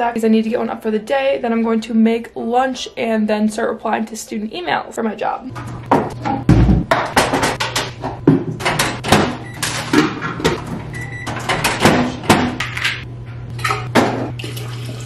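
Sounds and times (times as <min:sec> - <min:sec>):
steady low hum: 0:05.3 - 0:15.0
cupboard doors banging: 0:05.9 - 0:10.7, 0:11.5 - 0:12.6.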